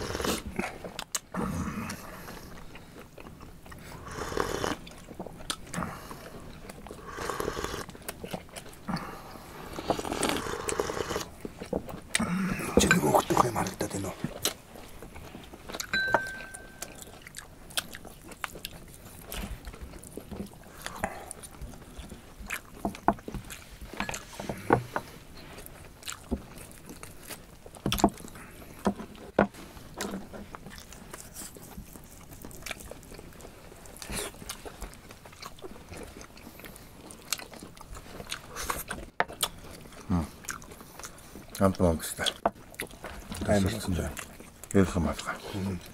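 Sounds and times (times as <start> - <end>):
meat being torn and chewed: 14.2 - 24.4, 25.6 - 45.9.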